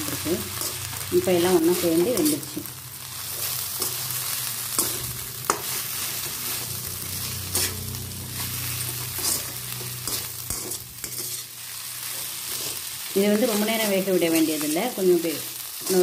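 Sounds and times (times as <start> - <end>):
food sizzling in a pan: 0.0 - 16.0
spatula scraping a pan: 1.6 - 2.6, 3.2 - 12.9.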